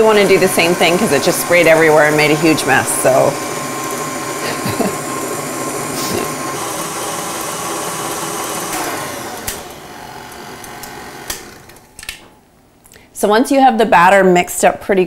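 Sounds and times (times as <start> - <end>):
stand mixer whisking batter: 0.0 - 11.8.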